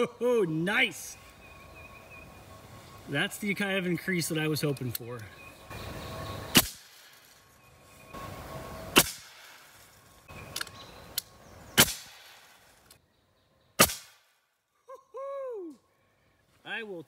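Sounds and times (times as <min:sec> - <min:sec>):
air rifle shots: 0:06.5 - 0:07.1, 0:09.0 - 0:09.7, 0:11.8 - 0:12.6, 0:13.8 - 0:14.3.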